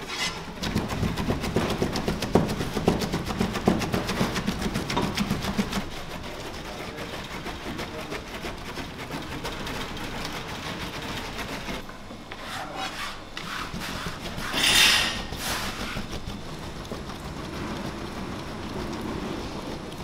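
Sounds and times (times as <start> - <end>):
loud knife scrape: 0.0 - 0.5, 12.3 - 15.9.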